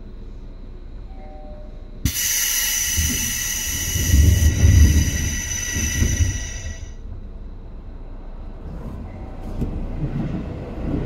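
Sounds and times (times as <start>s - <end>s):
compressed air hissing: 2.0s - 7.0s
train click: 2.0s - 7.4s, 8.6s - 11.0s
low rumbling: 2.8s - 11.0s.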